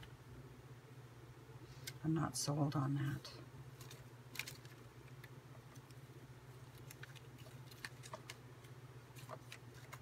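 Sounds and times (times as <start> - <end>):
steady low hum: 0.0 - 10.0
paper rustling: 3.8 - 5.9, 6.6 - 10.0.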